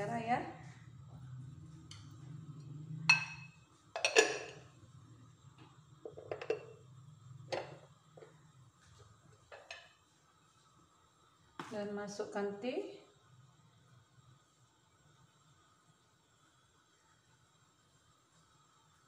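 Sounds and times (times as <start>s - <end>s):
kitchen utensils clinking and knocking: 3.1s - 4.7s, 6.1s - 6.8s.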